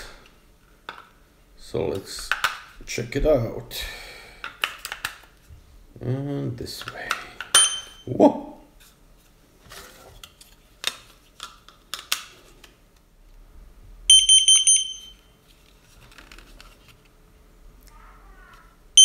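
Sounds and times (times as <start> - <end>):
shrill alarm beep: 7.6 - 8.1, 14.1 - 15.3.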